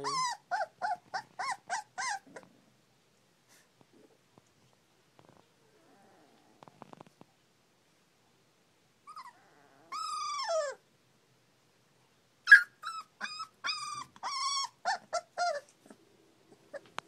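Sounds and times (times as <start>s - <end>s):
puppies whimpering: 0.0s - 2.5s, 9.1s - 10.8s, 12.5s - 17.0s.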